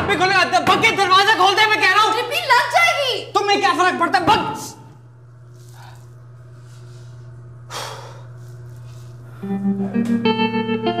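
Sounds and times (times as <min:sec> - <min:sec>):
steady low hum: 0:00.0 - 0:11.0
guitar music: 0:09.4 - 0:11.0.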